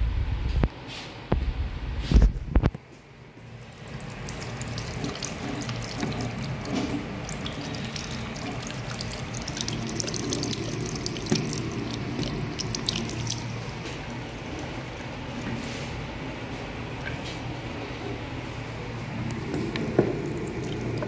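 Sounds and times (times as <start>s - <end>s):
tap running into basin: 3.4s - 15.8s, 19.2s - 21.0s.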